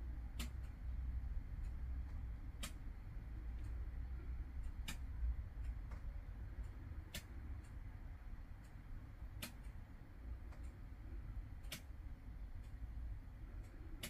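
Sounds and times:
steady low hum: 0:00.0 - 0:14.0
sharp ticks: 0:01.6 - 0:03.0, 0:04.6 - 0:07.8, 0:11.6 - 0:13.0.

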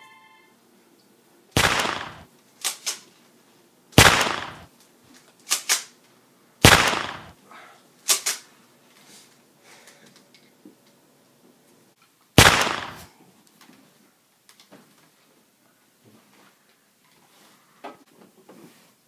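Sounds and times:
shotgun blasts: 0:01.6 - 0:02.3, 0:04.0 - 0:04.7, 0:06.6 - 0:07.4, 0:12.4 - 0:13.1.

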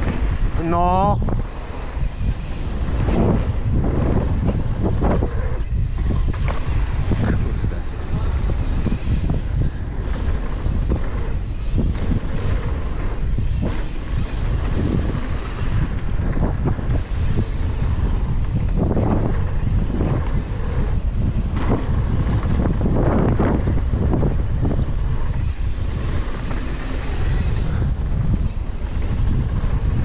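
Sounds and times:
bike knocking and rattling: 0:00.0 - 0:30.0
wind buffeting microphone: 0:00.0 - 0:30.0.

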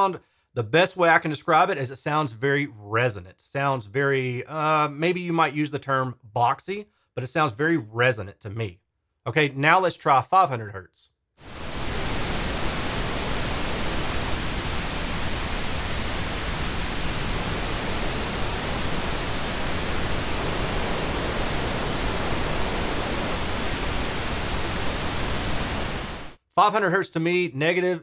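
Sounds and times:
pink noise test signal: 0:11.4 - 0:26.4.

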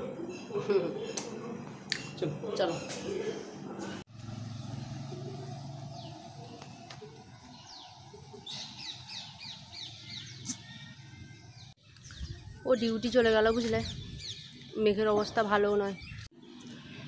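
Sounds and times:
birds calling: 0:04.5 - 0:17.0.

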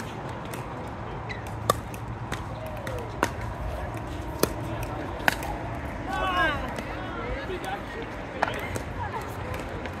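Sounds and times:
faint pops from nearby courts: 0:01.3 - 0:05.6.

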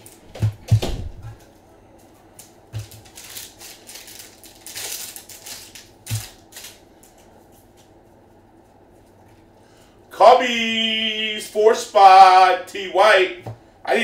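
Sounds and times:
foil wrapper crinkling and tearing: 0:02.4 - 0:07.3.

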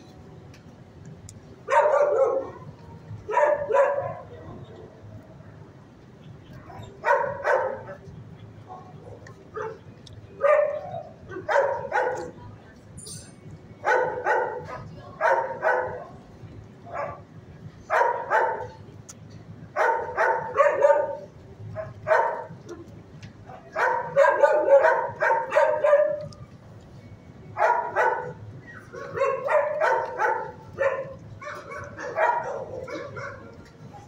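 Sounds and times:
dog barking: 0:01.7 - 0:02.7, 0:03.3 - 0:04.4, 0:06.7 - 0:08.0, 0:08.7 - 0:09.8, 0:10.4 - 0:12.3, 0:13.8 - 0:16.2, 0:16.9 - 0:17.2, 0:17.9 - 0:18.8, 0:19.8 - 0:22.5, 0:23.7 - 0:26.3, 0:27.6 - 0:33.5.

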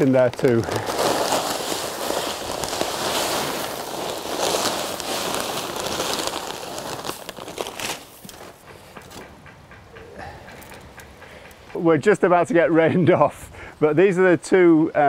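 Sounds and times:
grit pouring into wheelbarrow: 0:00.0 - 0:08.2
sack crinkling: 0:00.0 - 0:08.6.

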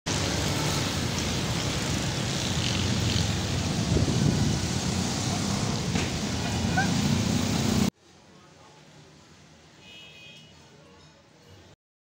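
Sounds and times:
motorbike and rickshaw engines: 0:00.1 - 0:07.9.

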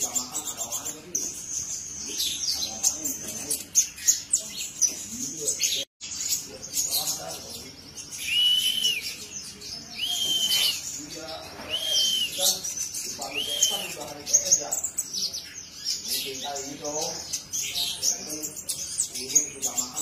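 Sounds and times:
bird twittering: 0:00.0 - 0:20.0
bird whistle: 0:08.2 - 0:09.2, 0:10.0 - 0:10.8, 0:11.7 - 0:12.5, 0:13.3 - 0:14.0.

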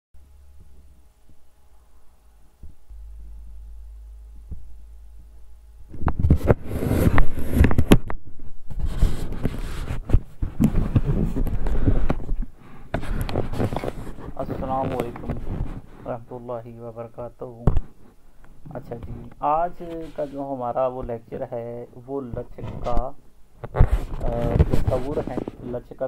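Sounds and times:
low hum: 0:00.2 - 0:16.0
microphone handling rumbling: 0:00.5 - 0:16.2, 0:17.6 - 0:21.2, 0:22.3 - 0:25.8.

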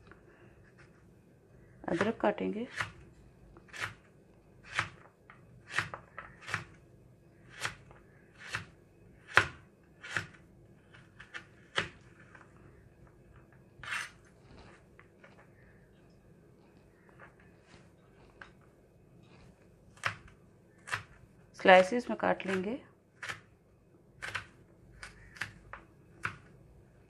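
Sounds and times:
knife chopping on plastic board: 0:03.7 - 0:04.0, 0:04.6 - 0:06.8, 0:07.5 - 0:12.0, 0:19.9 - 0:21.2, 0:22.4 - 0:23.5, 0:24.2 - 0:26.6
faint handling sounds: 0:12.0 - 0:19.9.

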